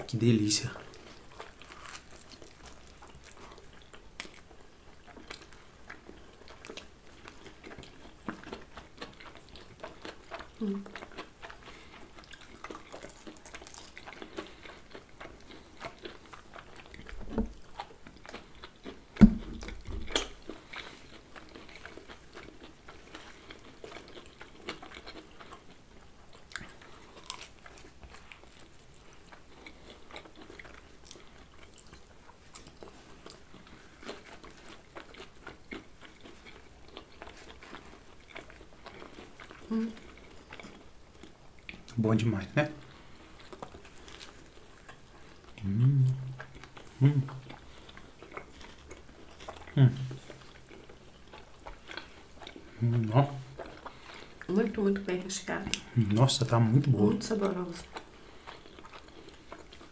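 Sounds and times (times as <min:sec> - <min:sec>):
people chewing food: 0:00.0 - 0:59.9
sharp thump: 0:19.2 - 0:19.6.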